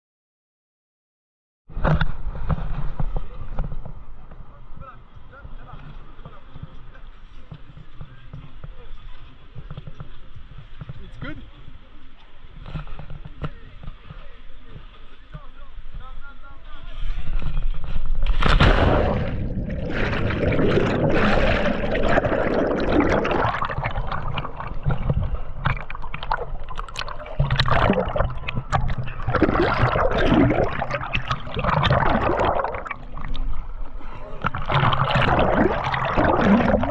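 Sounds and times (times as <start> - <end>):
river water splashing: 18.2 - 36.9.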